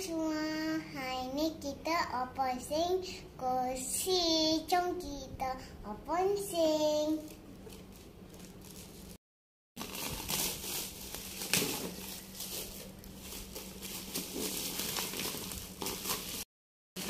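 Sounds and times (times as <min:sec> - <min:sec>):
plastic bag crinkling and tearing: 0:07.2 - 0:09.2, 0:09.8 - 0:16.5.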